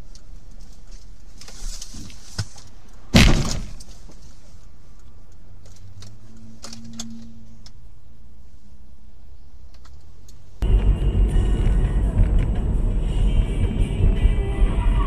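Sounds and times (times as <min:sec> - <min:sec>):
motorcycle crashing into car: 0:03.1 - 0:03.8
low hum: 0:06.0 - 0:09.8, 0:10.4 - 0:15.0.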